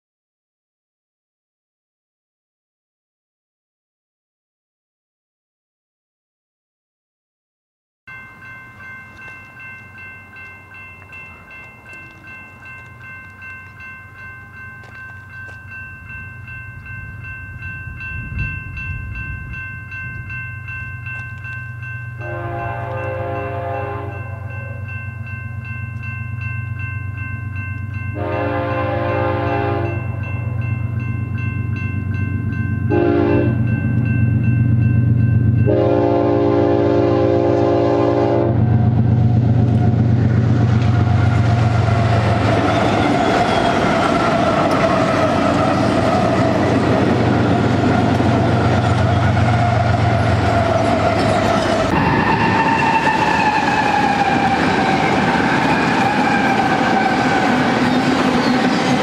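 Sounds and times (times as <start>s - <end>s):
steel wheels on rails: 8.1s - 36.6s, 38.6s - 59.0s
rail cars rolling past: 8.1s - 59.0s
locomotive horn blasts: 22.2s - 24.9s, 28.2s - 30.2s, 32.9s - 33.7s, 35.7s - 39.0s
locomotive engines rumbling: 27.4s - 59.0s.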